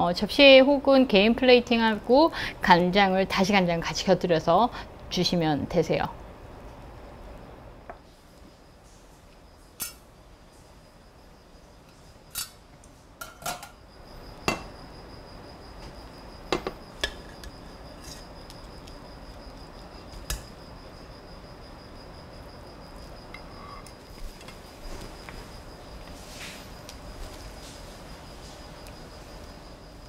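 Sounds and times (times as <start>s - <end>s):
faint high whine: 0.3s - 30.0s
metal tongs clinking on pot: 9.8s - 10.0s.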